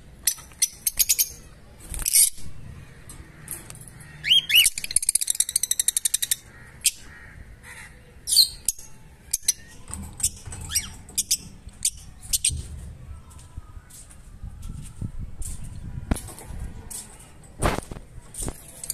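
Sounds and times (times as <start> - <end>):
lovebirds chirping: 0.2 - 14.2.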